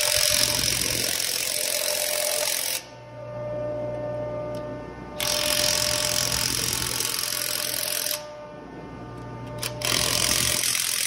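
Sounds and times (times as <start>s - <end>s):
impact wrench hammering: 0.0s - 2.9s, 5.2s - 8.2s, 9.5s - 11.0s
steady hum: 0.0s - 11.0s.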